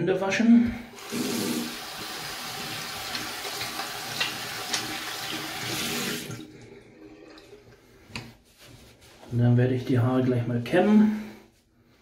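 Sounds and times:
tap water running: 0:00.9 - 0:08.3
hands being washed: 0:00.9 - 0:09.1.

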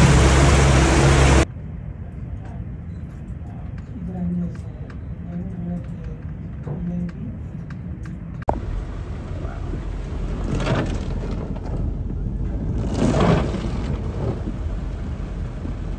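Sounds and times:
cars driving through floodwater: 0:00.0 - 0:01.5, 0:08.5 - 0:15.9
heavy rain: 0:00.0 - 0:01.5, 0:08.5 - 0:15.9.

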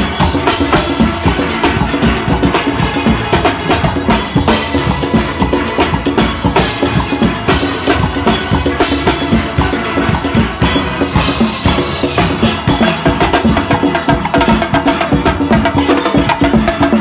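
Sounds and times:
drum kit playing fast beat: 0:00.0 - 0:17.0.

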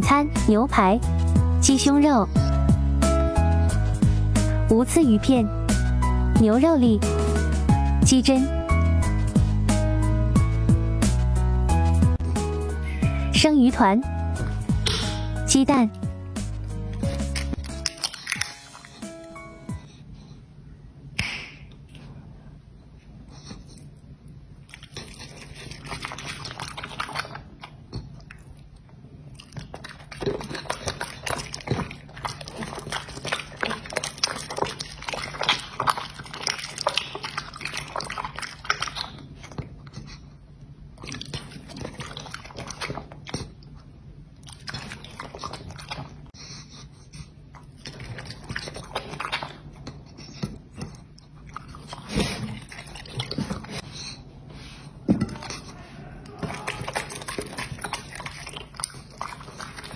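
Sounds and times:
dog chewing meat: 0:24.6 - 0:40.2, 0:41.0 - 0:46.4, 0:47.5 - 0:53.9, 0:55.2 - 0:59.9.

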